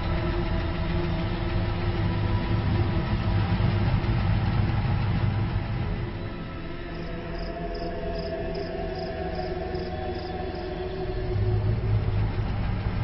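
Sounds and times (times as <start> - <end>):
car engine rumble: 0.0 - 13.0
crickets chirping: 6.1 - 12.4.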